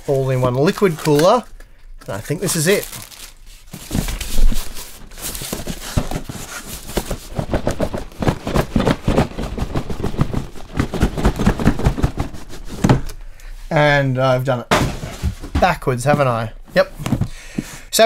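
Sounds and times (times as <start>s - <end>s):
cardboard packaging handled: 2.1s - 13.1s.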